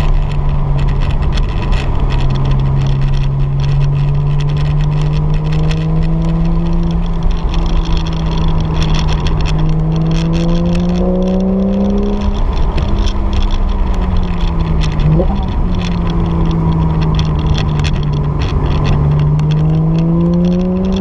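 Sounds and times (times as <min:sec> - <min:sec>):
car engine accelerating: 0:00.0 - 0:21.0
road noise: 0:00.0 - 0:21.0.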